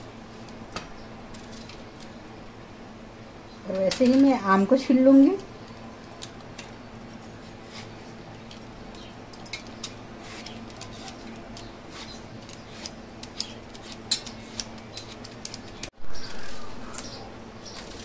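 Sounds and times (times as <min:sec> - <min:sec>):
steady low hum: 0:00.0 - 0:18.0
peeler scraping mango skin: 0:10.2 - 0:18.0.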